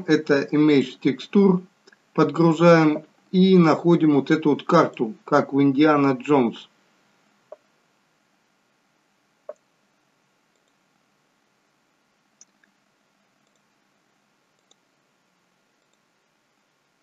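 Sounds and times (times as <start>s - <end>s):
computer mouse clicks: 10.5s - 10.8s, 13.4s - 13.7s, 14.6s - 14.8s, 15.8s - 16.1s.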